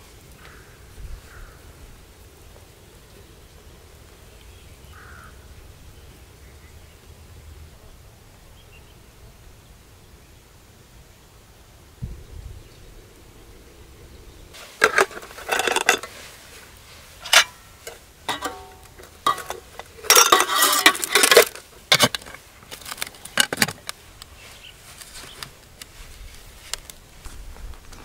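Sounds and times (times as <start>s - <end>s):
metal pots and lids clattering: 14.6s - 16.3s, 17.2s - 23.8s.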